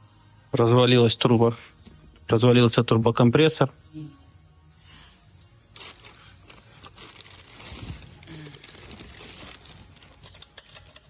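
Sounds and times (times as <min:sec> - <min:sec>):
plastic bag crinkling: 0:05.7 - 0:10.9.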